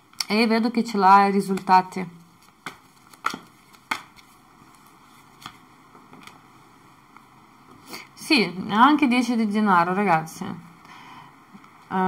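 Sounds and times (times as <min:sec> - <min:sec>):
cards clicking on a table: 0:02.5 - 0:04.3.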